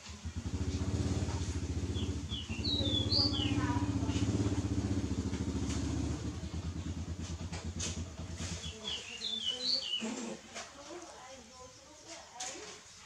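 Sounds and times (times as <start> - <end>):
vehicle engine running: 0.0 - 9.8
birds chirping: 0.4 - 10.4.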